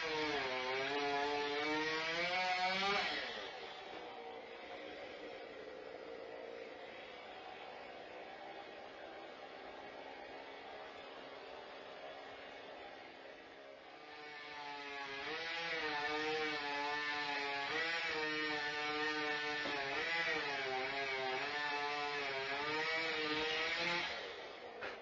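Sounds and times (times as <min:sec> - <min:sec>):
chainsaw cutting wood: 0:00.0 - 0:05.4, 0:13.9 - 0:25.0.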